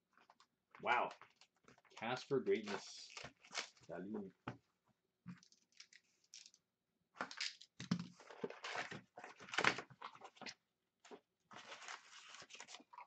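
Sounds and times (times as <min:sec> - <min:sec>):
cardboard box and foil rustling: 0:11.5 - 0:13.0.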